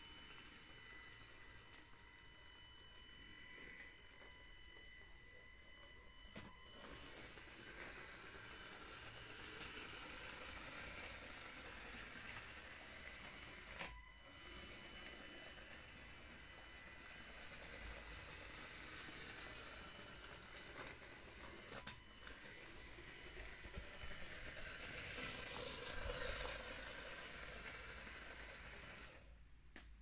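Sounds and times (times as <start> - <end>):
toy train motor whirring: 6.6 - 29.4.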